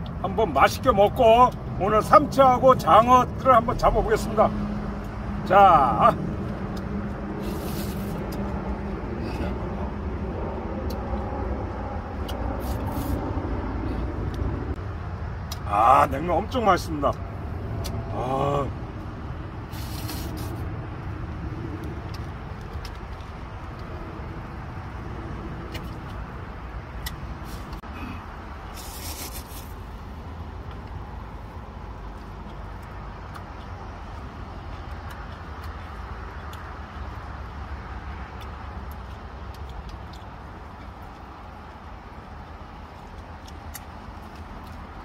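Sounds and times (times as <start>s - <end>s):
low outdoor rumble: 0.0s - 45.0s
person slurping noodles: 7.4s - 8.4s, 12.6s - 13.2s, 19.7s - 20.6s, 28.7s - 29.8s.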